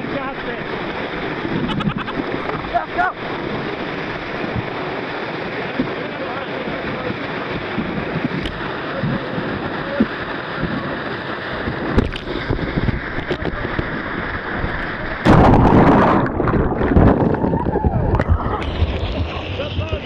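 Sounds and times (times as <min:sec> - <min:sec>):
rapids rushing: 0:00.0 - 0:20.0
wave splash: 0:00.0 - 0:20.0.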